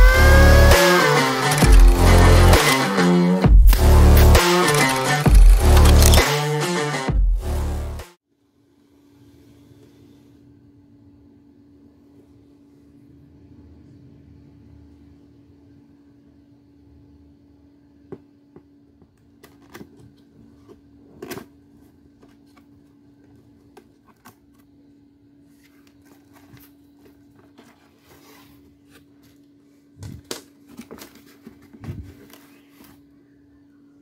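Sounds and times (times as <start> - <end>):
paper rustling: 4.4 - 6.3, 30.1 - 33.0
faint steady hum: 8.3 - 34.0.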